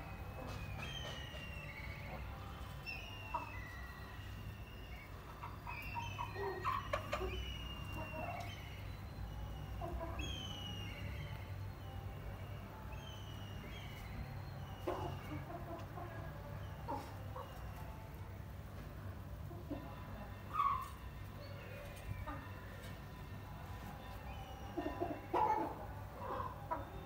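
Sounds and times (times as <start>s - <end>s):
birds chirping: 0.0s - 18.4s.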